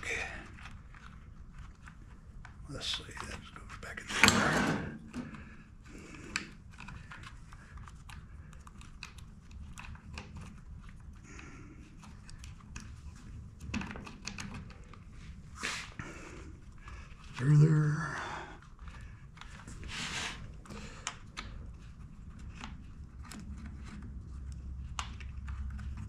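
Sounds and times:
small plastic parts clicking: 6.1s - 15.2s.

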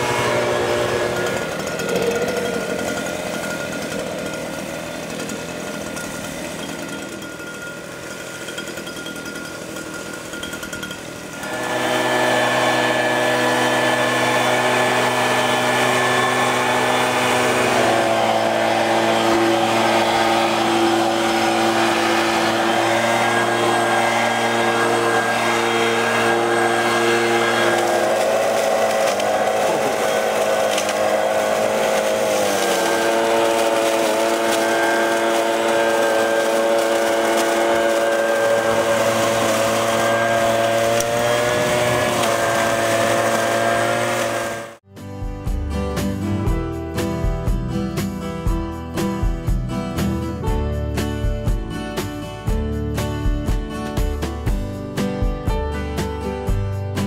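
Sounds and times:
two-stroke leaf blower engine: 0.0s - 44.9s.

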